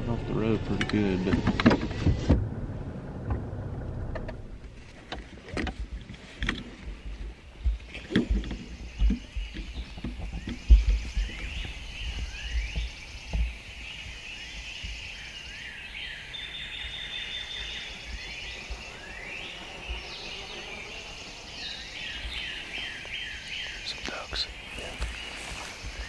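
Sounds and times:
low thumps: 0.8 - 15.2
songbirds singing: 5.1 - 26.0.

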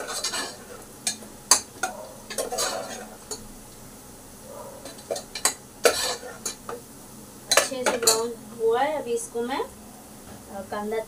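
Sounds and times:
metal spoon scraping pot: 0.0 - 0.8, 1.5 - 3.1, 4.8 - 6.6
onions frying in oil: 0.0 - 11.0.

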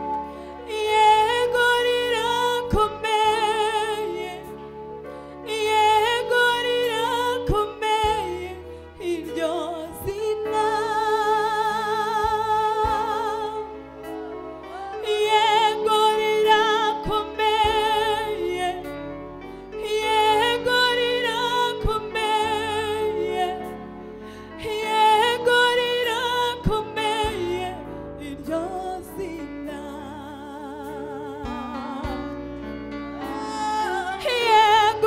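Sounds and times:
women singing gospel: 14.6 - 18.9, 19.8 - 23.8, 33.2 - 35.0.

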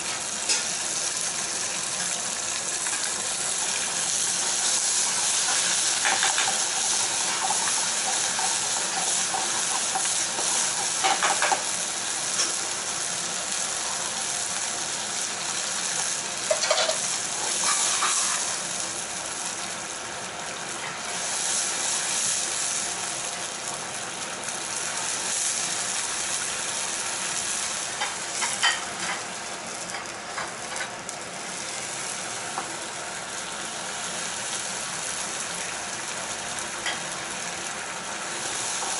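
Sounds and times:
food sizzling in a frying pan: 0.0 - 38.9
metal tongs scraping a pan: 5.4 - 11.6, 16.5 - 18.5.

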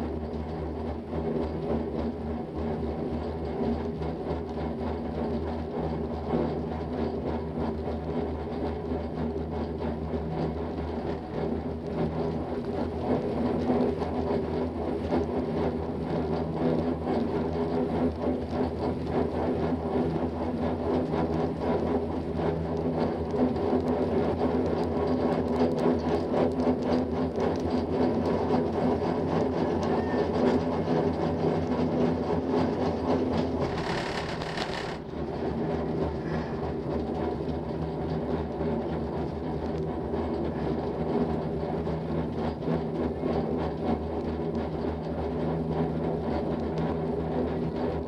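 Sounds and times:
gondola rope mechanical hum: 30.4 - 36.2.

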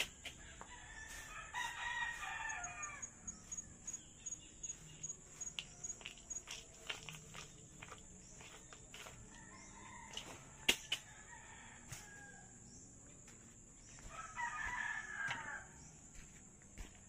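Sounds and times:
rooster crowing: 0.4 - 4.0, 9.3 - 12.7, 14.0 - 15.9
high-pitched insect drone: 2.2 - 7.4.

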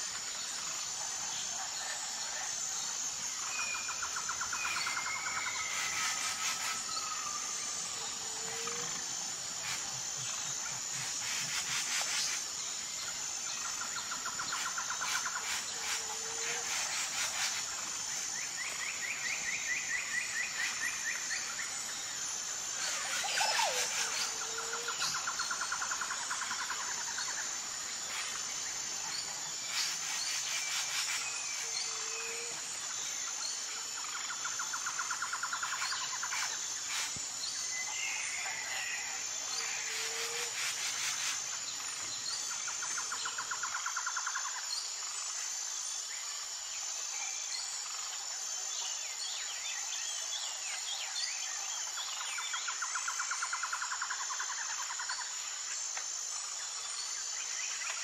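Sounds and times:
high pulsing insect trill: 0.0 - 58.0.

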